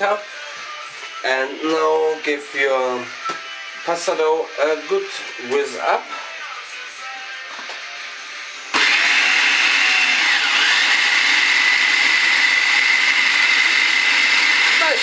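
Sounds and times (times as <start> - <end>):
food processor motor whining: 8.7 - 15.0.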